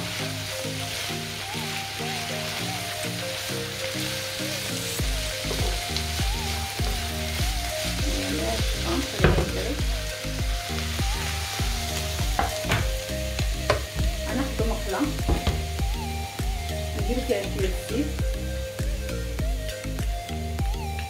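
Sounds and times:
food sizzling in a frying pan: 0.0s - 21.0s.

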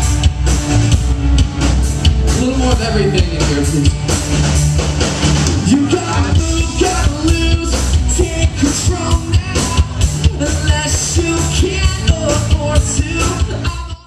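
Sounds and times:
steady drum beat: 0.0s - 14.0s
person singing: 5.6s - 14.0s.

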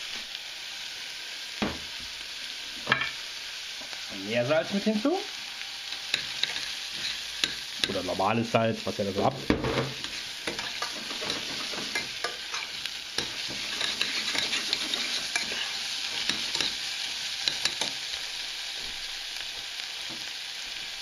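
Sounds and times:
vegetables sizzling in oil: 0.0s - 21.0s
metal spoon scraping a pan: 5.9s - 8.0s, 9.8s - 18.0s.

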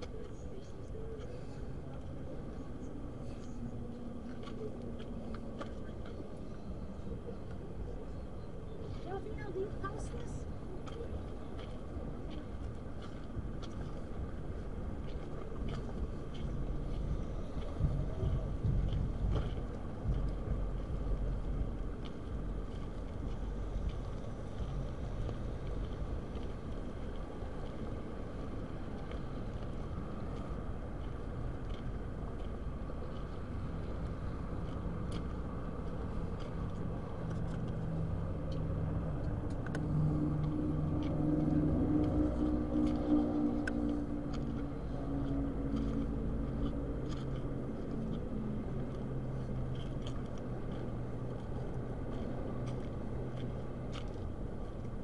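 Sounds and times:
low rumble: 11.3s - 55.0s.

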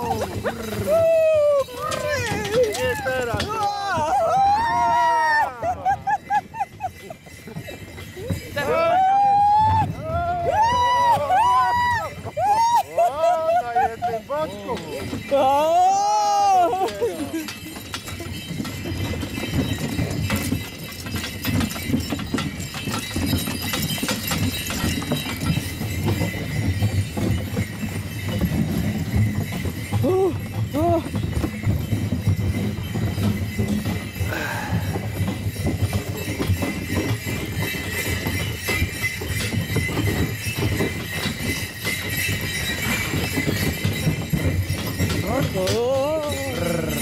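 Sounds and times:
horse hoofbeats on snow: 0.0s - 47.0s
sleigh rumbling: 0.0s - 47.0s.

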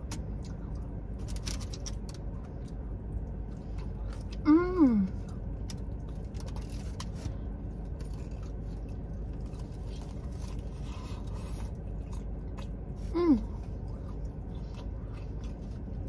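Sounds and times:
person chewing food: 0.0s - 4.4s, 5.1s - 16.0s
low rumble: 0.0s - 16.0s
person humming: 4.4s - 5.2s, 13.1s - 13.6s.

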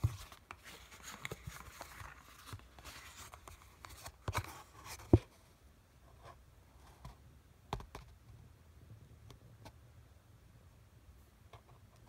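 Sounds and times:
packaging rustling and scraping: 0.0s - 5.1s.

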